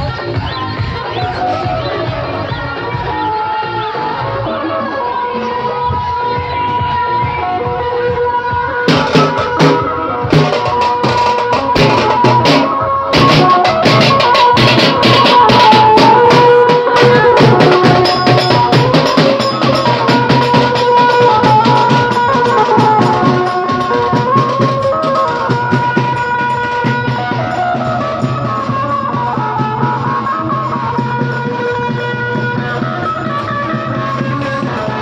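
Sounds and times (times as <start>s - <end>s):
held melody line: 0.0s - 35.0s.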